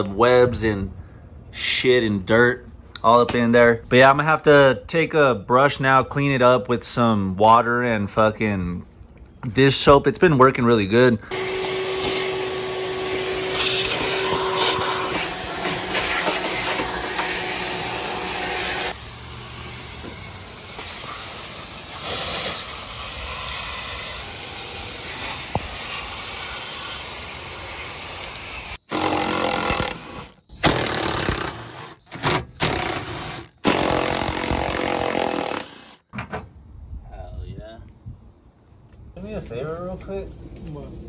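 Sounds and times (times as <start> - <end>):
shop vacuum running: 11.3 - 25.6
garden hose spraying water: 18.9 - 28.9
cordless power tool spinning bolts: 28.9 - 36.0.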